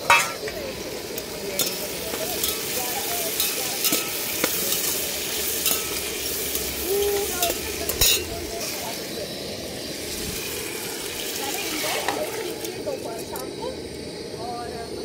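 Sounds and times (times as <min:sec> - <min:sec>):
vegetables sizzling in a pot: 0:00.0 - 0:15.0
steel spoon scraping a pot: 0:01.6 - 0:08.4.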